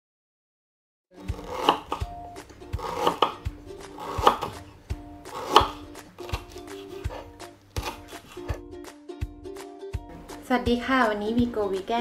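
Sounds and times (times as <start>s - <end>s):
knife slicing on cutting board: 1.2s - 8.6s.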